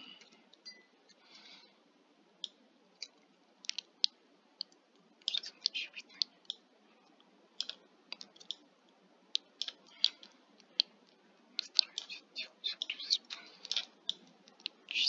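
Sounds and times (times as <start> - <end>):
mouse and keyboard clicks: 2.4 - 6.6, 7.6 - 8.6, 9.4 - 11.0, 11.6 - 14.8.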